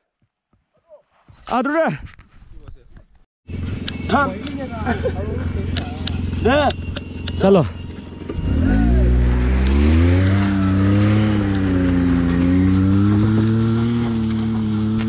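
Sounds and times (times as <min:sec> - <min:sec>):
vehicle engine starting and running: 0:03.5 - 0:15.0.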